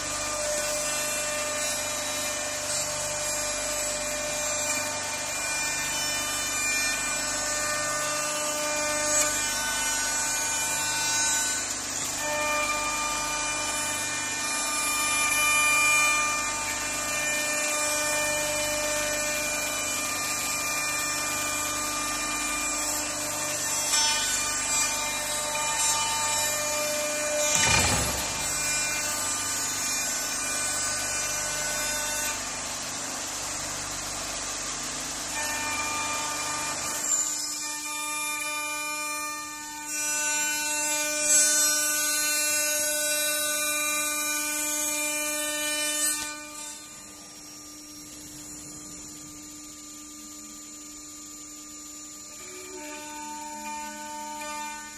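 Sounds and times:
router spindle whining: 0.0s - 45.6s, 46.2s - 54.9s.

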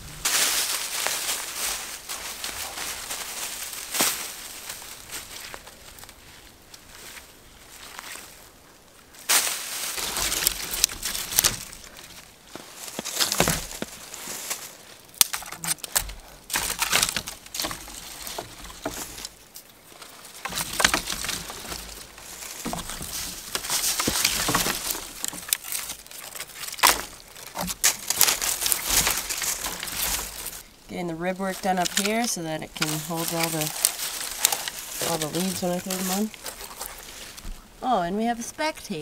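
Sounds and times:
twigs rustling and crackling: 0.0s - 39.0s
sticks knocking together: 15.2s - 19.4s, 20.4s - 30.6s.

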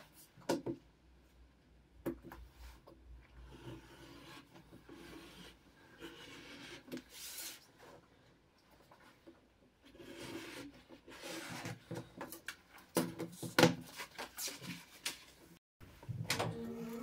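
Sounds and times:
knife blade scraping along ruler: 3.5s - 7.6s.

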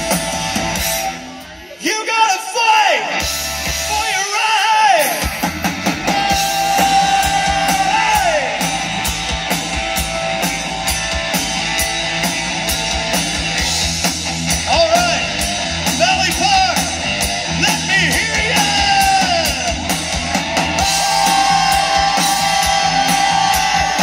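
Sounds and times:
rock band playing: 0.0s - 24.0s
person singing: 6.0s - 8.7s.

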